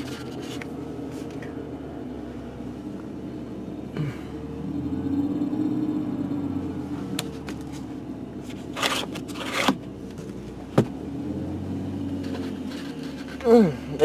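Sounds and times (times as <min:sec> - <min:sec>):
scraping rustles: 0:00.0 - 0:01.5, 0:12.1 - 0:13.5
car engine idling unsteadily: 0:00.0 - 0:11.2, 0:11.8 - 0:14.0.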